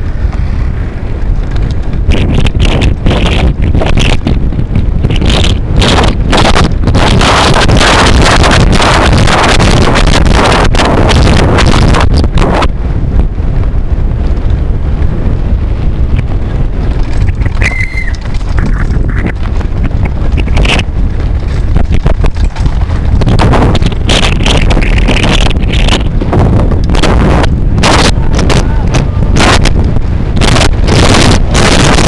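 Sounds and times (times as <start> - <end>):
bike knocking and rattling: 0.0 - 32.0
wind buffeting microphone: 0.0 - 32.0
short high squeal: 17.6 - 18.2.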